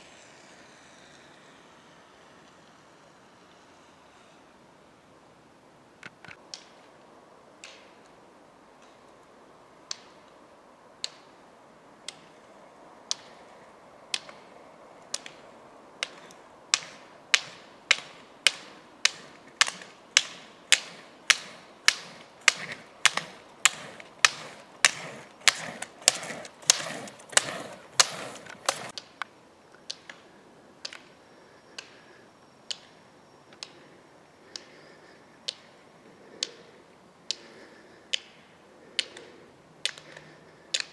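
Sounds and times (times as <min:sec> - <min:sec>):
ski wheels rolling hum: 0:00.0 - 0:40.9
ski pole tips clicking on asphalt: 0:06.0 - 0:06.9, 0:07.6 - 0:08.2, 0:08.8 - 0:10.4, 0:11.0 - 0:11.4, 0:12.0 - 0:12.4, 0:13.1 - 0:32.0, 0:32.7 - 0:33.9, 0:34.5 - 0:40.9.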